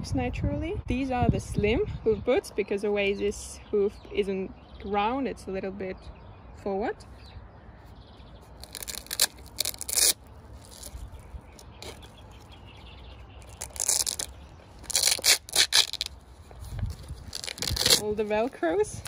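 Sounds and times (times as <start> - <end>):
velcro straps ripping: 8.5 - 19.0.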